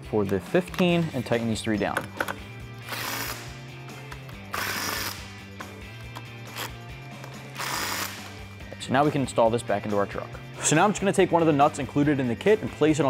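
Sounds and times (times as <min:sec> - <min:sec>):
impact wrench bursts: 0:02.8 - 0:03.5, 0:04.5 - 0:05.3, 0:07.5 - 0:08.4.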